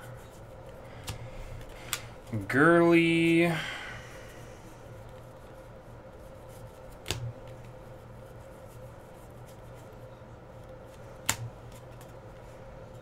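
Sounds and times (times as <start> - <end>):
steady low hum: 0.0 - 13.0
trading cards clicking: 1.0 - 2.5, 10.9 - 12.2.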